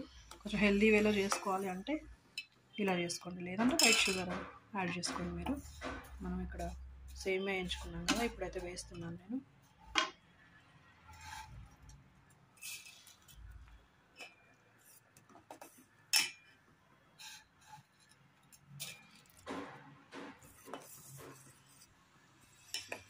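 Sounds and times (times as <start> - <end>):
spoon clinking and scraping pot: 0.0 - 3.0, 3.6 - 7.0, 7.6 - 9.0, 15.6 - 16.5, 22.4 - 23.0.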